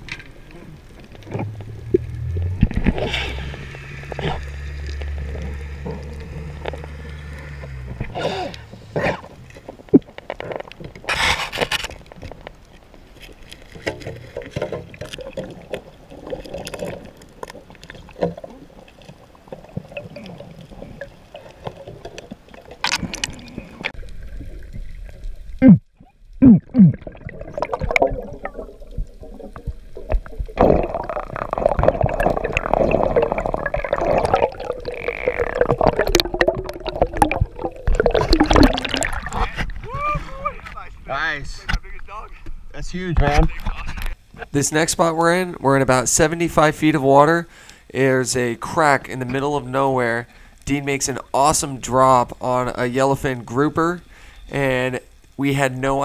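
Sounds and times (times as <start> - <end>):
muffled underwater gurgling: 22.8 - 41.0.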